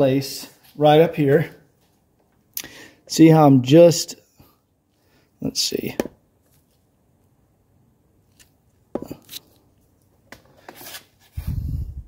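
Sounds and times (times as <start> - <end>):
scrapes and rustles: 10.4 - 11.4.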